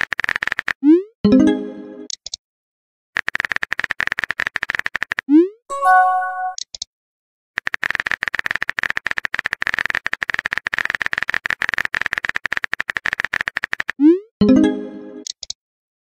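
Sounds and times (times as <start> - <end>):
message sent chime: 5.7 - 6.6, 14.4 - 15.2.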